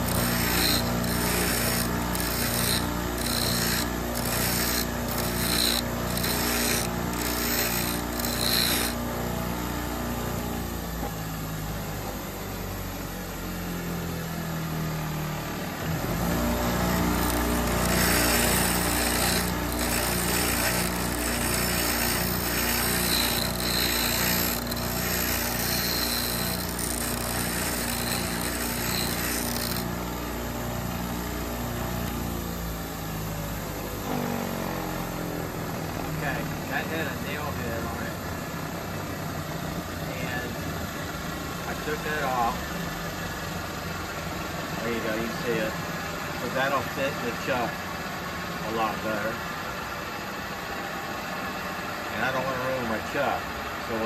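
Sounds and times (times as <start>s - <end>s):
metal grinding strokes: 0.0s - 9.0s, 16.2s - 29.9s
bench grinder motor hum: 0.0s - 12.1s, 15.3s - 32.5s.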